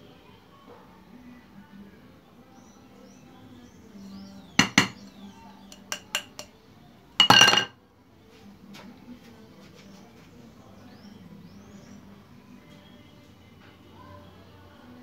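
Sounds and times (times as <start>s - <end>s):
fishing rod parts knocking: 4.6s - 5.0s, 5.7s - 6.5s.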